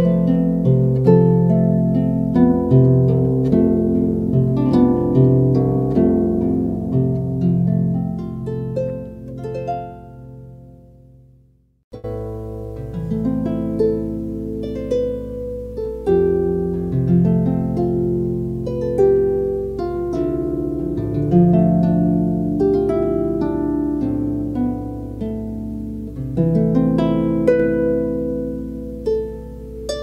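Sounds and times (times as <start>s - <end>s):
harp plucked notes and chords: 0.0s - 11.2s, 11.9s - 30.0s.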